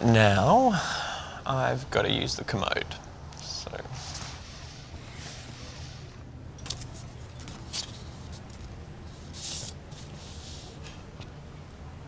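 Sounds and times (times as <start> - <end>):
low room hum: 0.0 - 12.0
paper card rustling: 5.0 - 11.4.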